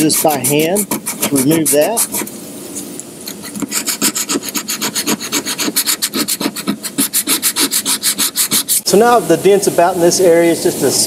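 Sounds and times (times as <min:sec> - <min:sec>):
sandpaper rubbing on car door: 0:00.0 - 0:02.3, 0:03.3 - 0:08.9.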